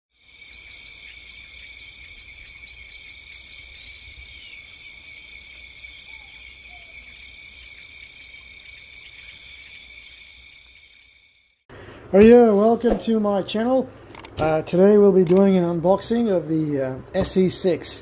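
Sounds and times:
insect chirps: 0.1s - 11.7s
insect chorus droning: 0.1s - 11.7s.

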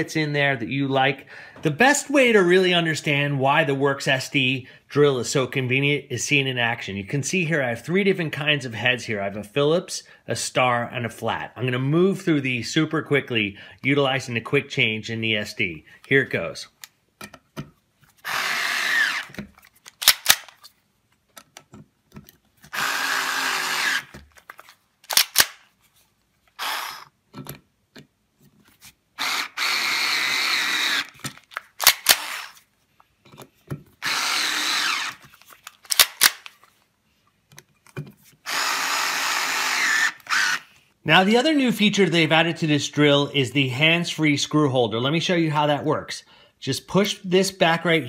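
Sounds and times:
cordless screwdriver running: 18.2s - 19.4s, 22.7s - 24.2s, 26.6s - 27.1s, 29.2s - 32.6s, 34.0s - 35.3s, 38.5s - 40.6s.

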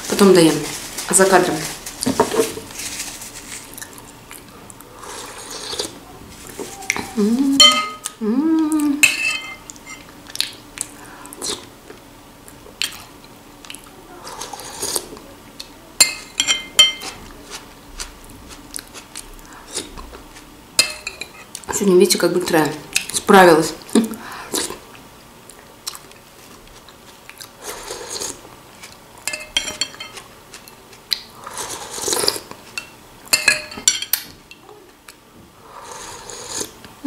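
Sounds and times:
spoon clinking on glass bowl: 7.6s - 8.0s, 9.0s - 10.0s, 16.0s - 17.1s, 29.3s - 30.2s, 32.8s - 34.1s.

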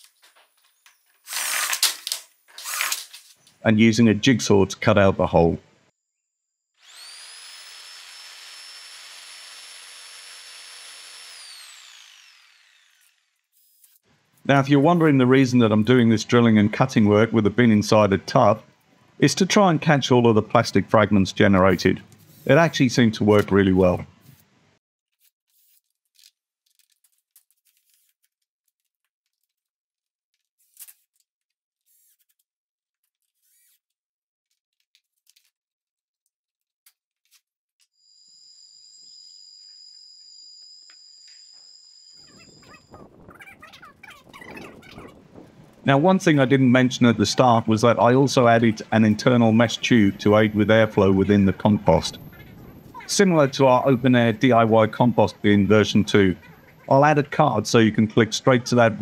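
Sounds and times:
jigsaw cutting plastic: 1.2s - 3.3s, 6.8s - 14.1s, 25.1s - 35.5s.

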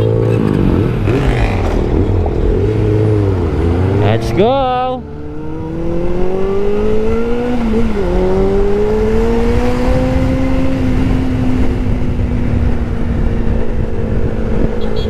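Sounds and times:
motorcycle engine accelerating: 0.0s - 15.0s
wind and road noise: 0.0s - 15.0s.

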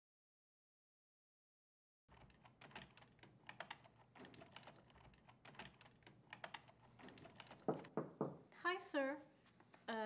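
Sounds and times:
computer keyboard typing: 2.1s - 8.0s.

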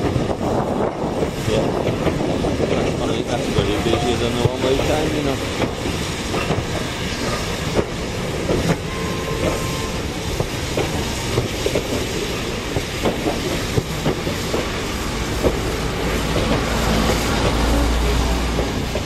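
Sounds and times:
train rumble: 0.0s - 19.0s
train wheels clacking over rail joints: 0.0s - 19.0s.

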